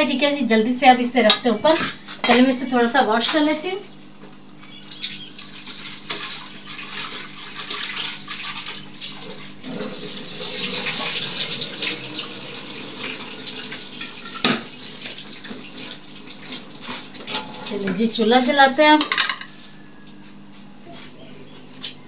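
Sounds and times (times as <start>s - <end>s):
tap water splashing into pot: 13.0s - 17.3s.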